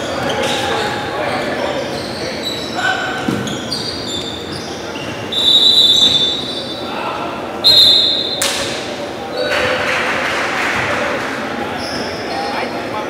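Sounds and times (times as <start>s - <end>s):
shoes squeaking on gym floor: 0.0s - 6.9s.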